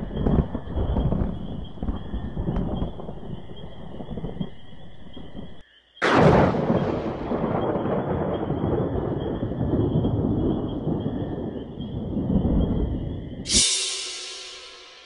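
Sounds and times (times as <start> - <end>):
loud thunderclap: 0.0 - 13.5
low thunder rumbling: 0.0 - 13.6.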